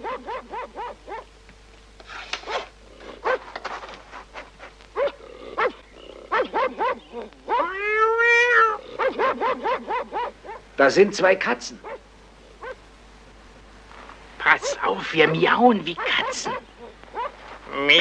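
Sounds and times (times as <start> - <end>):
dog howling: 0.0 - 1.3, 5.0 - 10.6, 15.9 - 17.4
small dog yapping: 0.0 - 1.3, 2.4 - 3.5, 5.0 - 10.6, 11.8 - 12.0, 12.6 - 12.8, 15.9 - 17.4.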